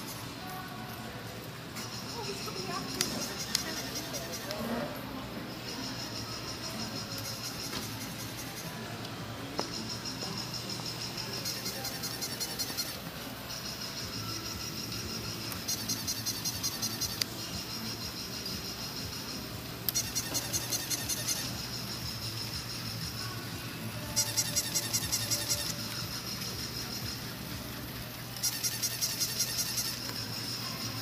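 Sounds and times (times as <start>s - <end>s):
toy mechanism whining: 1.8s - 4.8s, 9.8s - 19.0s, 19.8s - 31.0s
fast even ticking: 9.7s - 23.3s, 24.0s - 31.0s.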